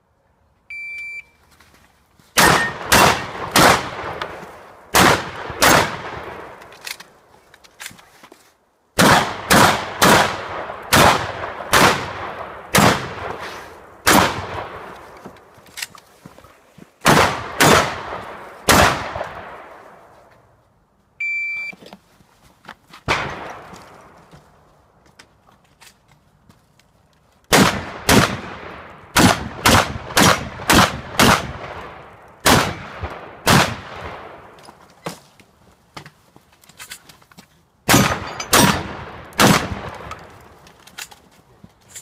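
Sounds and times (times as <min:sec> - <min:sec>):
high electronic beep: 0:00.7 - 0:01.4, 0:21.2 - 0:21.8
shotgun shots: 0:02.4 - 0:06.6, 0:09.0 - 0:14.9, 0:17.0 - 0:19.7, 0:27.5 - 0:34.5, 0:37.9 - 0:40.1.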